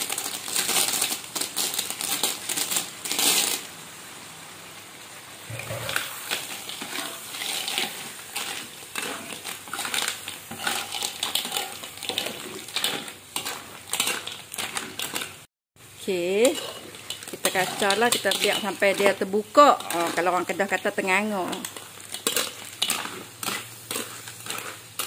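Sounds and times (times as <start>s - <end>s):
metal spatula stirring shells: 5.5s - 15.5s, 16.1s - 25.0s
clam shells clattering into wok: 5.6s - 15.4s, 16.4s - 25.0s.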